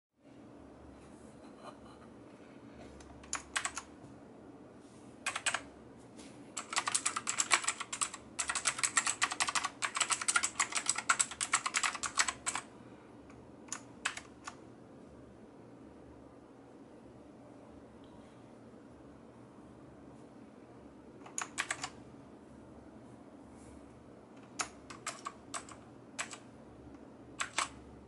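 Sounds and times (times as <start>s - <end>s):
mechanical keyboard typing: 3.0s - 3.9s, 5.2s - 5.7s, 6.6s - 12.7s, 13.6s - 14.6s, 21.2s - 22.0s, 24.4s - 26.5s, 27.4s - 27.8s.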